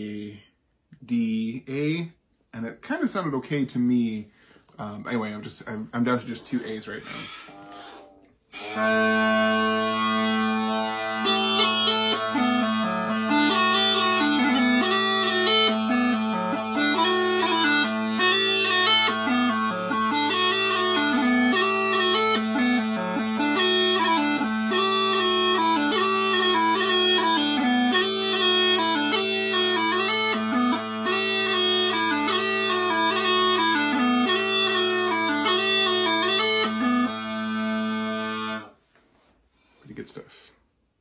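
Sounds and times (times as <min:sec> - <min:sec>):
small pipes playing a tune: 0:06.1 - 0:39.3
steady drones: 0:07.0 - 0:38.7.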